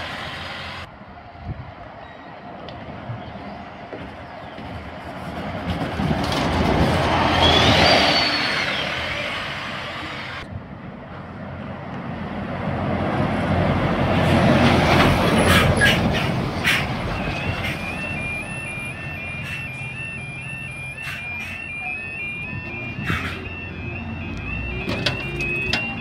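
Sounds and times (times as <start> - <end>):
bus passing: 0.0 - 26.0
high squeal: 7.2 - 9.8, 16.8 - 26.0
lorry passing: 11.3 - 26.0
two-tone crossing alarm: 16.9 - 26.0
metal clanks: 24.8 - 26.0.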